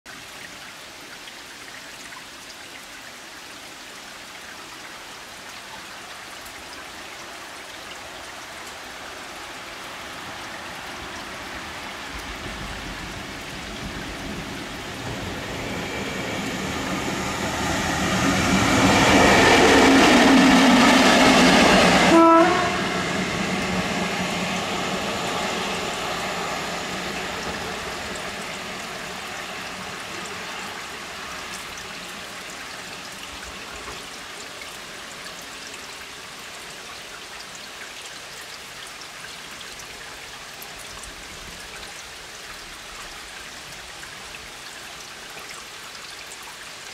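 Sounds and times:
rain falling: 0.1s - 46.9s
electric locomotive passing: 10.0s - 33.0s.

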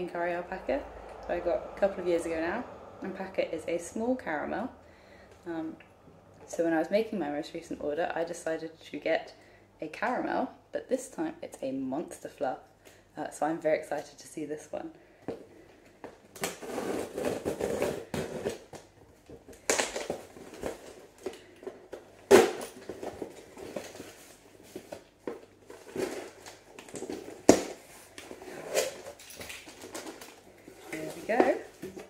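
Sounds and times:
packing tape cut and pulled: 25.7s - 30.4s.

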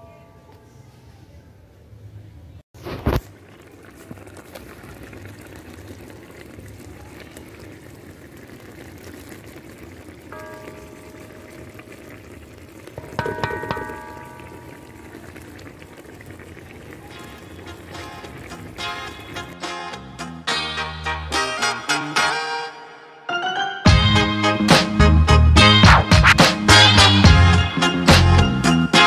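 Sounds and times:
sauce bubbling in a pan: 2.8s - 19.6s.

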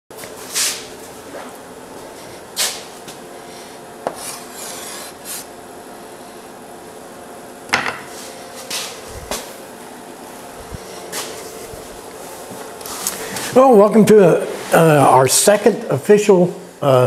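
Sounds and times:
chalk scratching on a blackboard: 4.1s - 5.5s.

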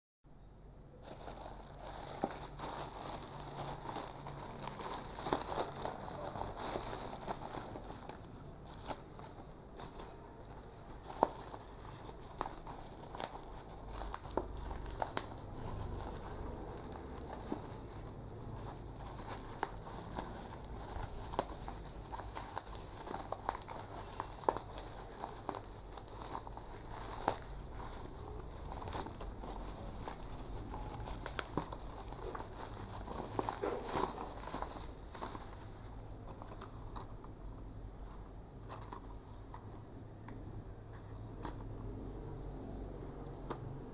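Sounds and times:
plastic packaging crinkling: 1.0s - 39.7s.

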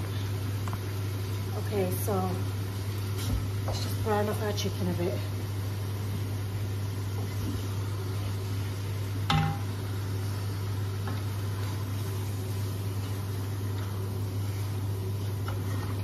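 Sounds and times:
chicken sizzling in pot: 0.0s - 16.0s
extractor fan humming: 0.0s - 16.0s.

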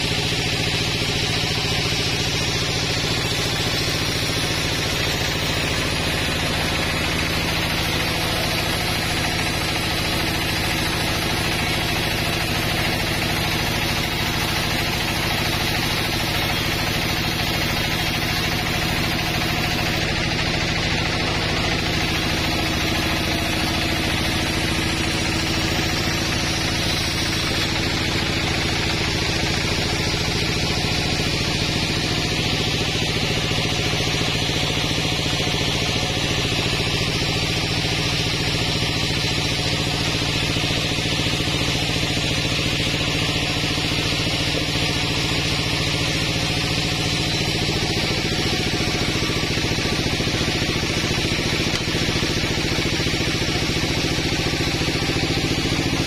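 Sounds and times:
sawmill blade ripping log: 0.0s - 56.0s.

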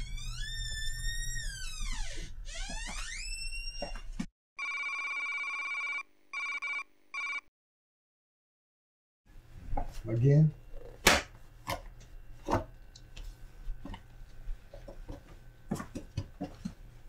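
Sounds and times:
electronic ring tone: 4.6s - 7.5s.

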